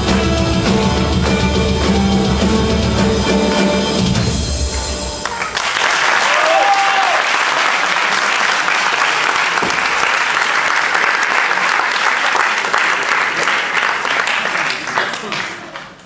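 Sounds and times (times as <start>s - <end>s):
audience applauding: 5.2s - 16.0s
crowd cheering: 5.2s - 16.0s.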